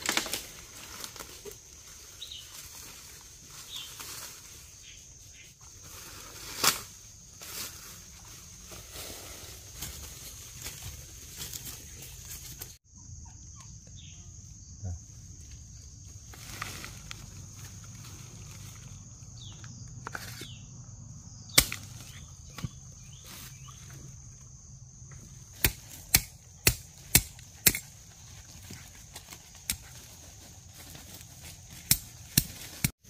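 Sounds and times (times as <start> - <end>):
high insect drone: 0.0 - 32.8
hand tool chopping into earth: 21.6 - 22.8, 25.5 - 28.0, 31.7 - 32.9.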